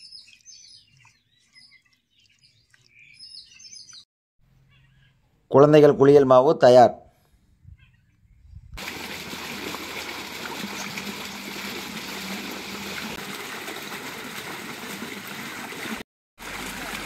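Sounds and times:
running and splashing water: 8.8s - 17.0s.

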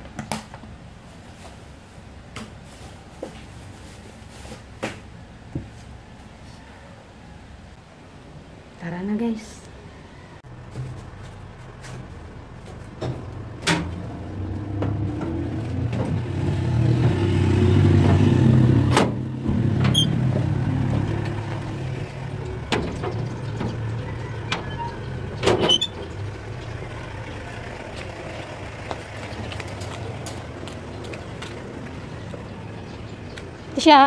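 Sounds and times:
vehicle engine rumbling past: 9.8s - 34.0s.

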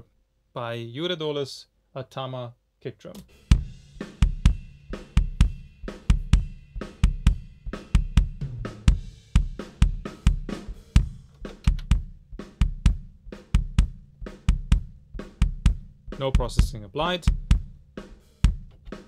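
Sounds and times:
kick drum thuds: 8.1s - 17.8s, 18.4s - 18.9s.

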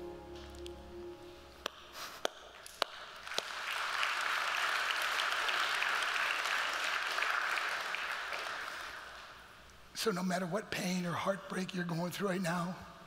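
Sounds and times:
audience applause: 2.8s - 9.4s.

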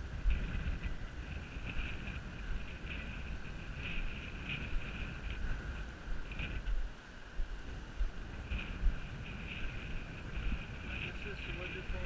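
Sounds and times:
steady high-pitched hiss: 0.0s - 12.0s
wind buffeting microphone: 0.0s - 12.0s.

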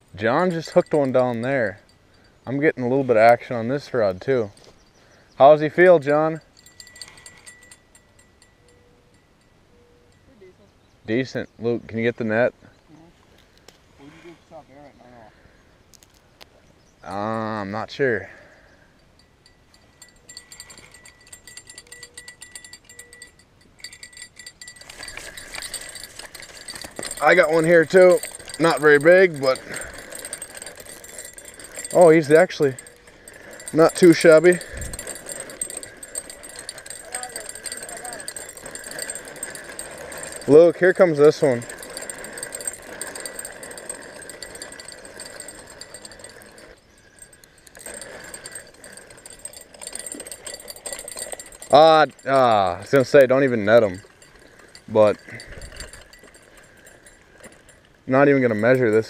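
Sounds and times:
rod and reel rattling: 0.0s - 10.5s, 17.0s - 59.0s
fishing reel drag ticking: 5.4s - 9.5s, 18.9s - 59.0s.

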